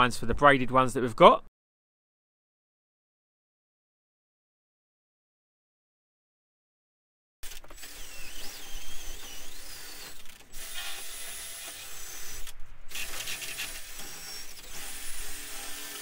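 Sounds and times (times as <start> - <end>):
cordless drill running: 7.4 - 16.0.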